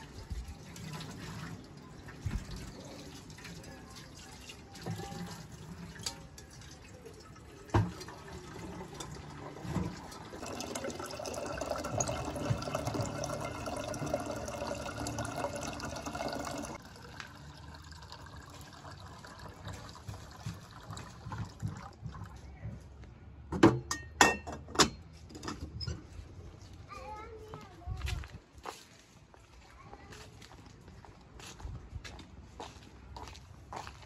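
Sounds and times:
tap water filling a kettle: 0:00.6 - 0:22.2.

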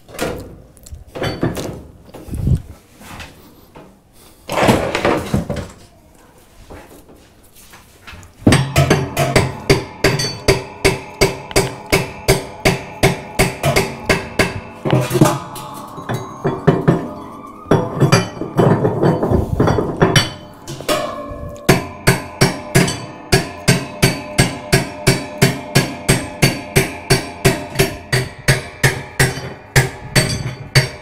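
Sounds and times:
hammer striking metal wrench: 0:08.5 - 0:31.0
metal scraping: 0:08.6 - 0:31.0.

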